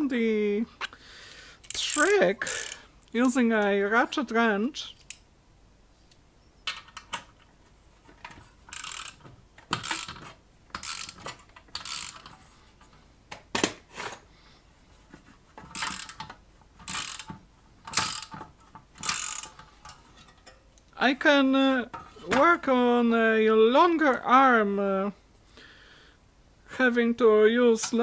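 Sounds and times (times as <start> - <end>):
ratchet wrench clicking: 1.6 - 2.8, 8.7 - 12.3, 15.7 - 18.4, 19.0 - 19.6.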